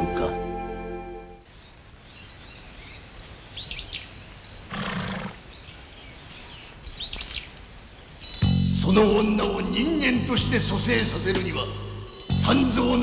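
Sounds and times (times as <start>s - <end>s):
horse calling: 4.6s - 5.5s.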